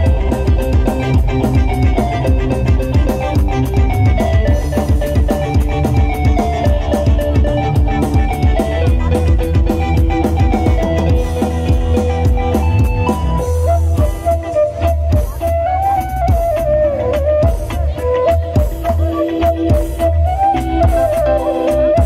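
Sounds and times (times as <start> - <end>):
melody line: 0.0 - 14.6
busy drum beat: 0.0 - 22.0
heavy bass: 0.0 - 22.0.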